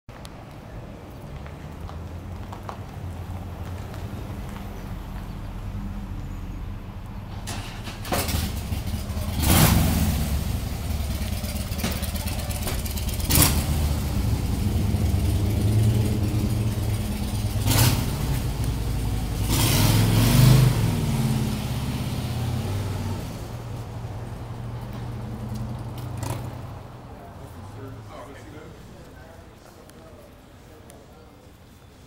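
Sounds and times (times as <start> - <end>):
motorcycle engine idling and revving: 7.3 - 28.0.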